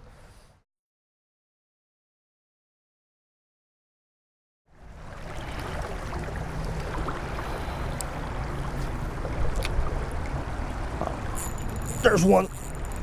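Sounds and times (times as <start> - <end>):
faint clicks: 11.0 - 13.0.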